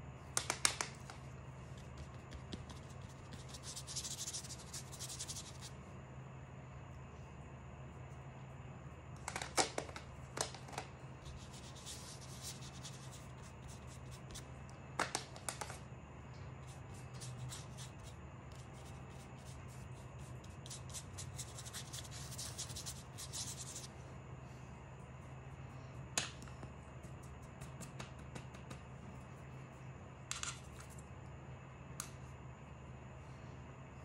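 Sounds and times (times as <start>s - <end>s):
steady low hum: 0.0s - 34.0s
paintbrush scratching on paper: 1.8s - 5.7s, 11.2s - 14.4s, 16.7s - 23.9s.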